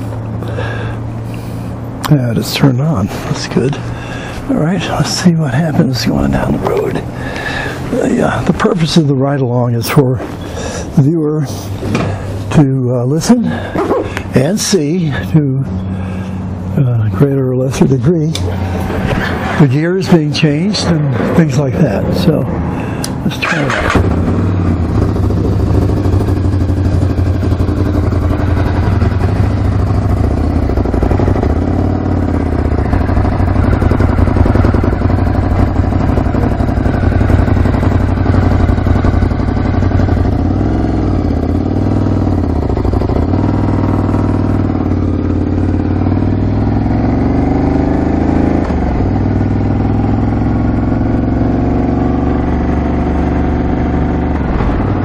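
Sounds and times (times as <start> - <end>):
motorcycle engine revving: 13.4 - 55.0.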